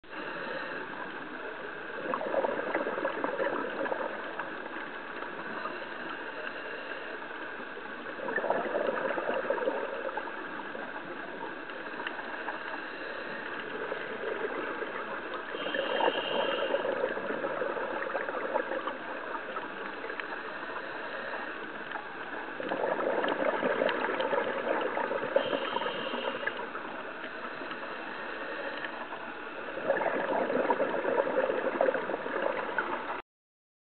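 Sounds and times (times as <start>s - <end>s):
exhaled bubbles gurgling: 0.0s - 33.2s
regulator hiss: 10.4s - 17.4s, 25.2s - 29.4s.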